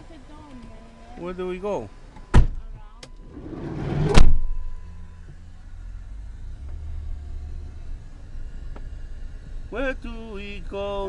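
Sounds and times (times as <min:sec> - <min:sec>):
road noise: 0:00.0 - 0:11.0
vehicle engine rumble: 0:00.0 - 0:11.0
vehicle door shutting thud: 0:02.3 - 0:02.6, 0:03.2 - 0:04.8.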